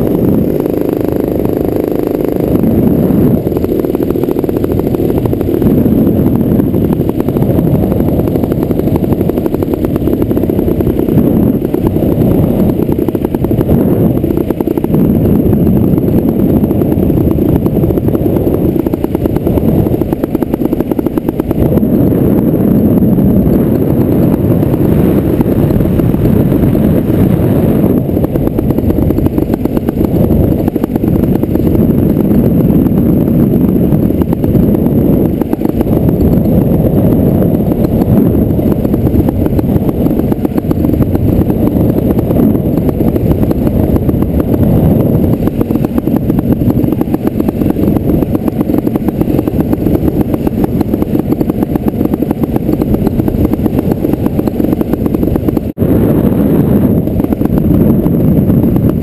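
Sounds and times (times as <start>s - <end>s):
paramotor engine drone: 0.0s - 59.0s.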